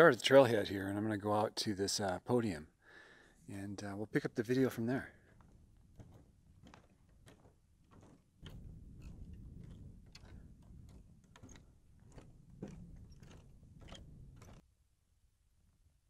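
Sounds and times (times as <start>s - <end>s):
footsteps on wooden boardwalk: 5.0s - 14.6s.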